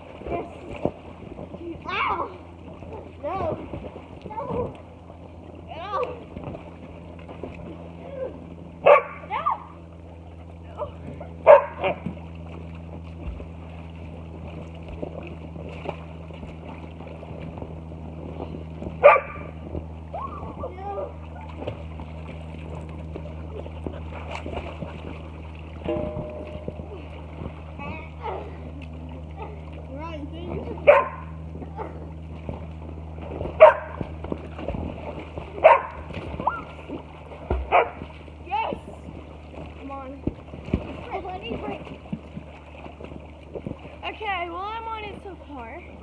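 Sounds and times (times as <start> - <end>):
steady low hum: 0.0 - 46.0
water sloshing and splashing: 0.0 - 46.0
dog barking: 8.8 - 9.2, 11.4 - 12.0, 19.0 - 19.4, 30.9 - 31.9, 33.6 - 34.0, 35.6 - 36.7, 37.7 - 38.0.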